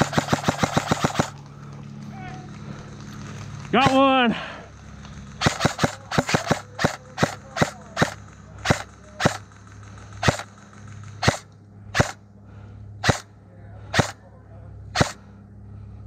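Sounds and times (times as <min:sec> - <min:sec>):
airsoft rifle shots: 0:00.0 - 0:01.4, 0:03.8 - 0:04.2, 0:05.4 - 0:12.2, 0:13.0 - 0:13.3, 0:13.9 - 0:14.2, 0:14.9 - 0:15.3.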